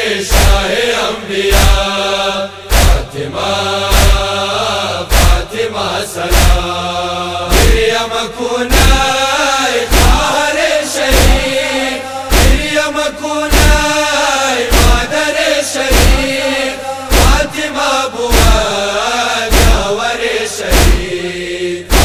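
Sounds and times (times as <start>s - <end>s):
men chanting a lament: 0.0s - 22.0s
chest-beat thumps: 0.3s - 0.7s, 1.5s - 1.9s, 2.7s - 3.1s, 3.9s - 4.3s, 5.1s - 5.5s, 6.3s - 6.7s, 7.5s - 8.0s, 8.7s - 9.2s, 9.9s - 10.4s, 11.1s - 11.5s, 12.3s - 12.8s, 13.5s - 14.0s, 14.7s - 15.1s, 15.9s - 16.3s, 17.1s - 17.6s, 18.3s - 18.7s, 19.5s - 19.9s, 20.7s - 21.1s.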